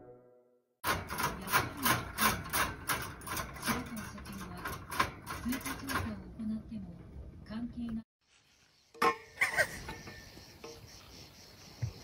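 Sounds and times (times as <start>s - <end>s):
parrot scraping metal cage: 0.8s - 6.3s.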